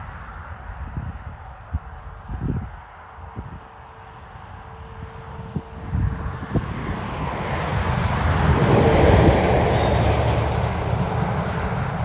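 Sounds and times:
diesel engines rumbling: 4.2 - 12.0
train wheels clattering on rails: 8.5 - 12.0.

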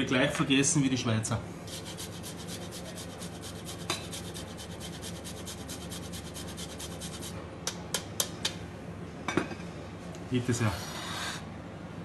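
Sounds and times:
rasp grater scraping food: 1.7 - 7.4.

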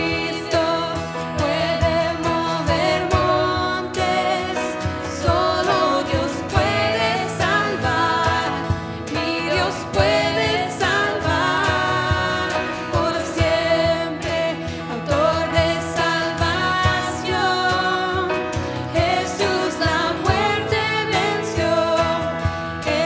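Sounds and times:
band playing: 0.0 - 23.0
person singing: 0.0 - 23.0
steady drum beat: 0.0 - 23.0.

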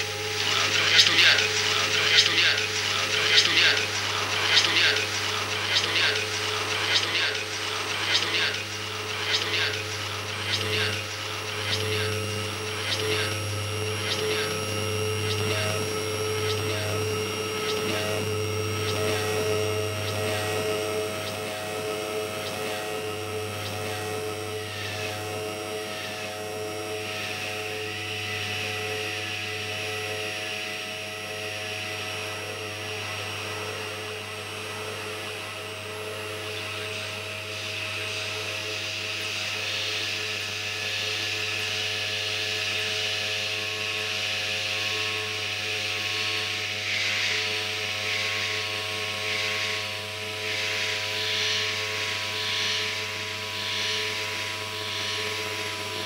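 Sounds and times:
held drone tones: 0.0 - 30.8
low electronic hum: 0.0 - 56.0.

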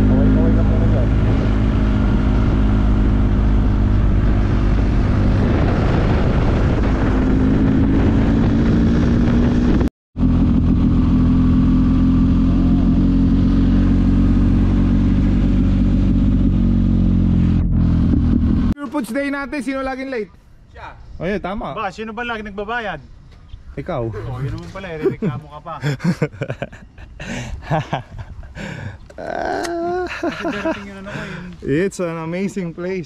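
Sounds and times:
motorcycle engine cruising: 0.0 - 18.8.

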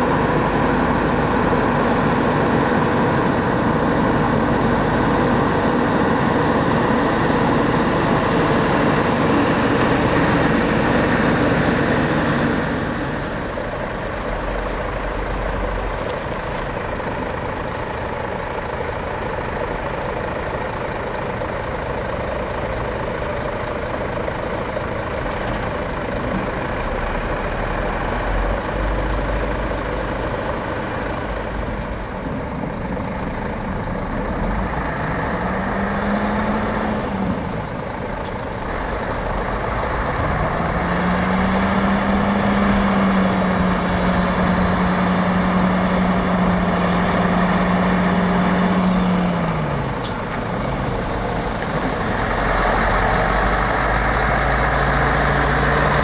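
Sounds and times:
diesel truck engines running: 0.0 - 56.0.

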